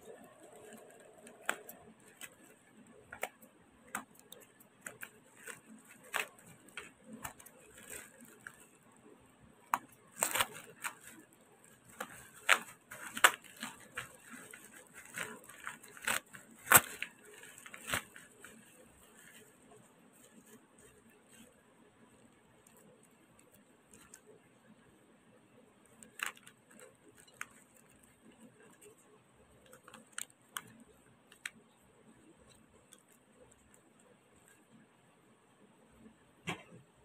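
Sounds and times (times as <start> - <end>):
plastic and bubble wrap crinkling: 0.0 - 24.5, 25.8 - 34.8.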